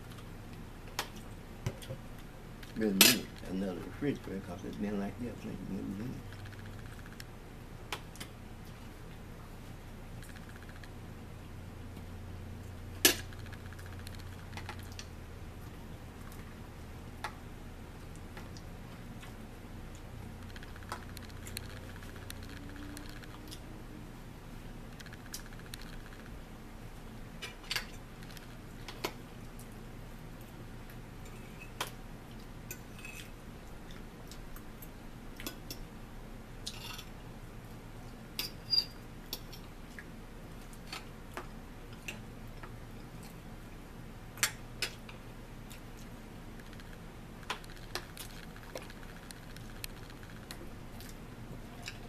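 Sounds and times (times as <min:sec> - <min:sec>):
faint low hum: 0:00.0 - 0:52.0.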